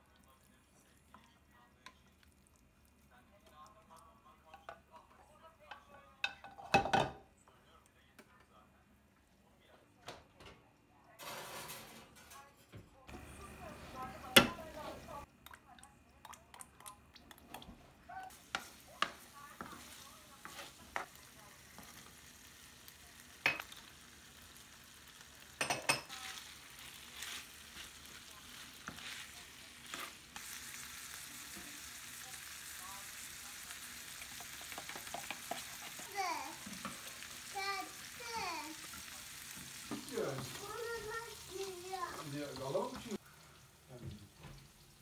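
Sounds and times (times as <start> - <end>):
food sizzling in a pan: 13.1 - 15.3, 17.2 - 45.0.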